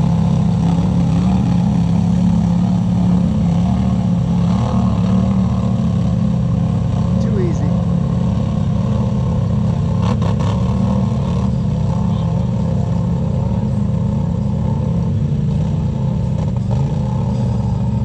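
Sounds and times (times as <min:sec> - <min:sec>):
vehicle engine idling: 0:10.7 - 0:18.0.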